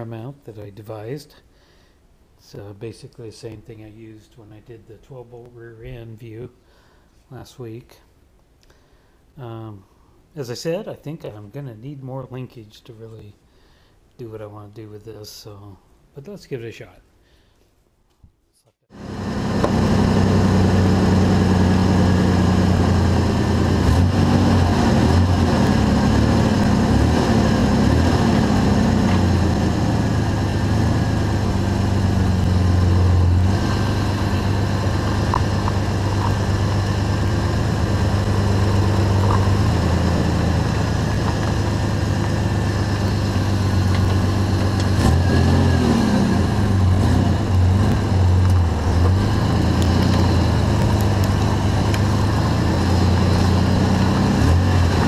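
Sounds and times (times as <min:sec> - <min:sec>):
pickup engine idling: 0:19.0 - 0:55.0.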